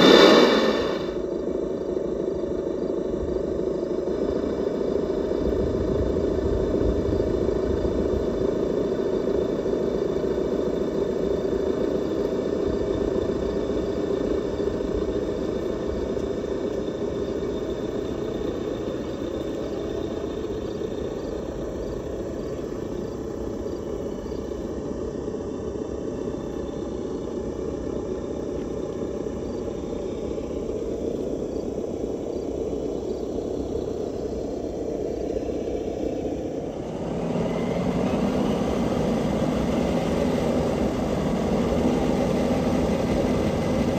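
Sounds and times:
simulated engine drone: 0:00.0 - 0:43.9.

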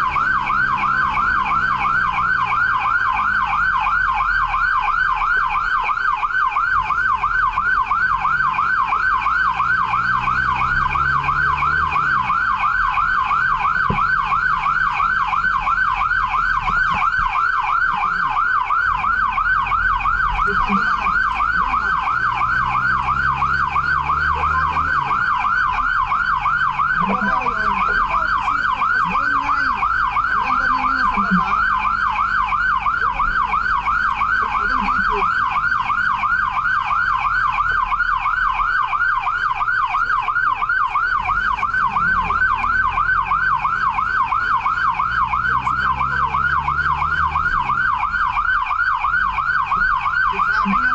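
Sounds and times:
fire truck siren yelping: 0:00.0 - 0:50.9
truck engine rumbling: 0:00.0 - 0:50.9.

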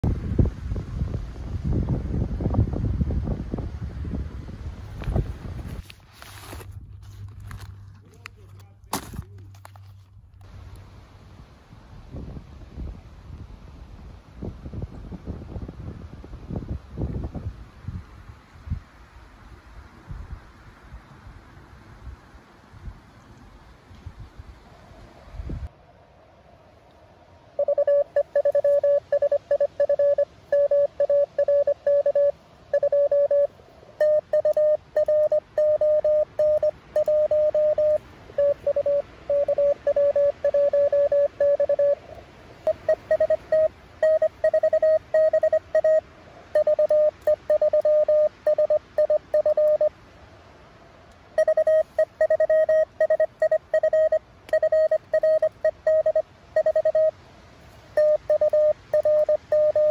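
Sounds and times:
morse code tone: 0:27.6 - 0:42.0, 0:42.7 - 0:49.9, 0:51.4 - 0:57.2, 0:58.0 - 0:59.9.

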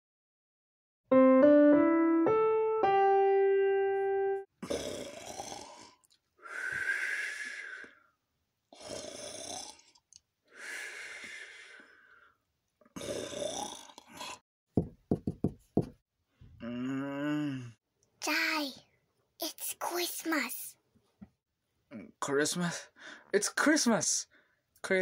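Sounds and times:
held piano notes: 0:01.1 - 0:04.5
person snoring: 0:04.6 - 0:08.0, 0:08.7 - 0:10.0, 0:13.0 - 0:14.4, 0:16.6 - 0:17.8.

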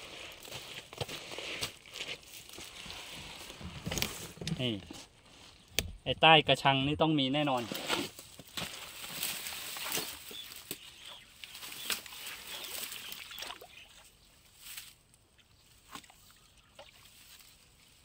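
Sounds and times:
net scraping and rustling: 0:07.5 - 0:10.9
water sloshing and splashing: 0:11.5 - 0:14.1.

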